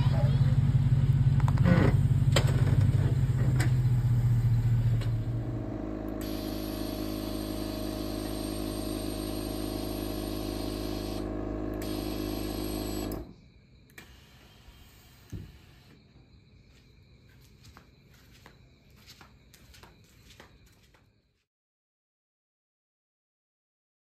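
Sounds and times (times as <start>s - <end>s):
motor humming: 1.5s - 13.4s.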